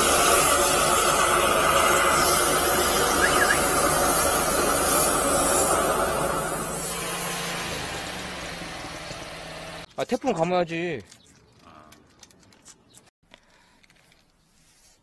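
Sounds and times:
water jet hissing into pipe: 0.0s - 8.7s.

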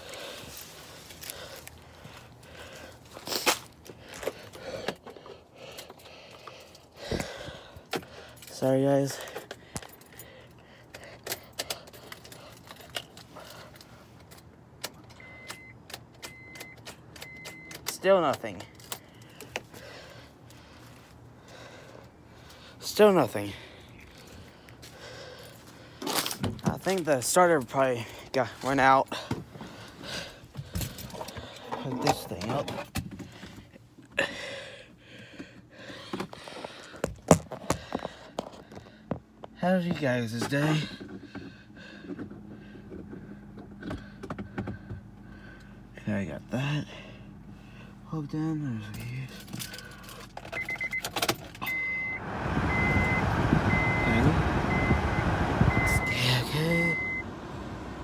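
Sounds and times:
car keys jangling: 8.0s - 19.6s, 48.9s - 52.1s
short electronic beeps: 50.6s - 51.0s, 51.6s - 57.3s.

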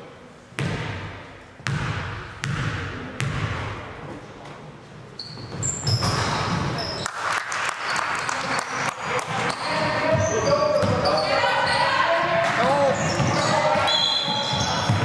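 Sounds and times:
basketball bouncing on gym floor: 0.6s - 3.8s, 9.2s - 11.2s, 14.4s - 15.0s
voices in a hall: 2.8s - 15.0s
sneakers squeaking on court: 5.1s - 7.1s, 9.3s - 15.0s.

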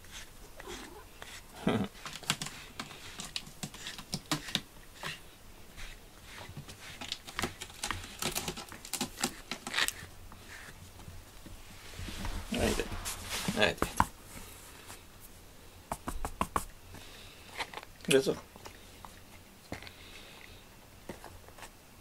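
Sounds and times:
brush stroking through fur: 0.0s - 7.1s, 11.6s - 15.4s.

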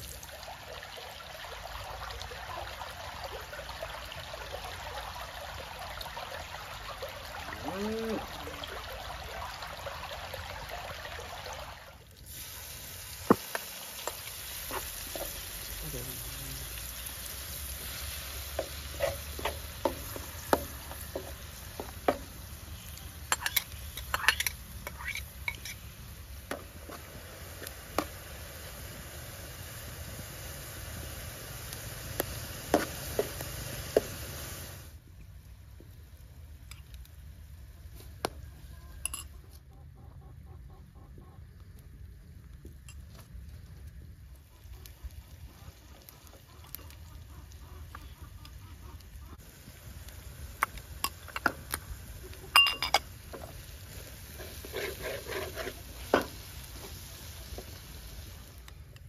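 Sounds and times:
food sizzling in a pan: 12.2s - 35.0s, 49.4s - 59.0s
utensils clinking against dishes: 23.3s - 25.8s, 52.5s - 53.1s
utensil clinking against pan: 52.5s - 53.1s.

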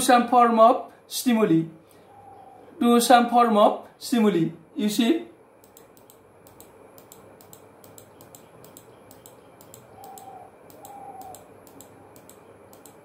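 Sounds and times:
faint rapid ticking: 5.6s - 13.0s.

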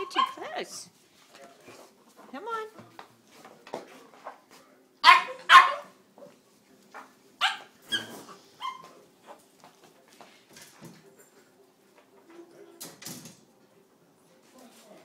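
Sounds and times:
puppy barking: 0.0s - 0.5s, 5.0s - 6.0s, 7.4s - 8.9s.

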